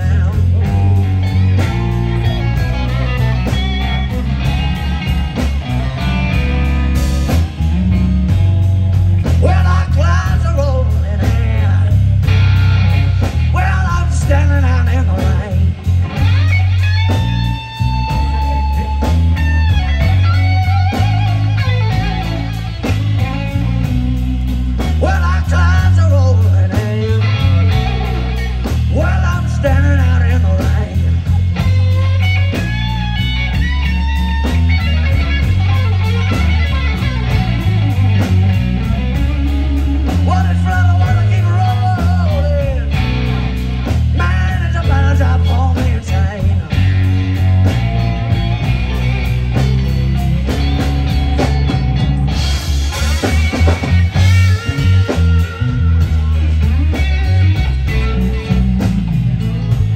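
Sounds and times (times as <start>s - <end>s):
bass and drums: 0.0s - 59.9s
electric guitar lines: 0.0s - 59.9s
person singing: 24.8s - 31.9s, 40.0s - 47.0s.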